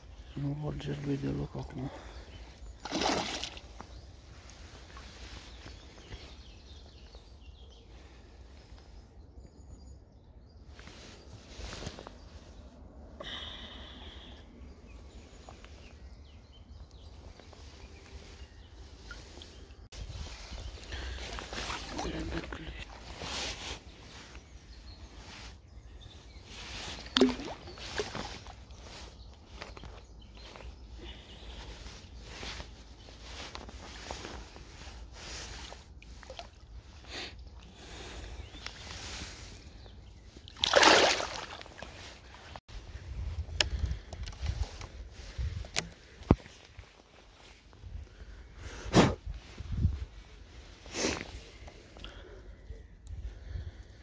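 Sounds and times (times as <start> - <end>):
water sloshing and swishing: 2.0 - 6.4, 17.1 - 24.4, 26.4 - 30.7, 31.4 - 42.6
fish splashing at water surface: 2.8 - 3.7, 27.1 - 28.4, 40.5 - 41.9.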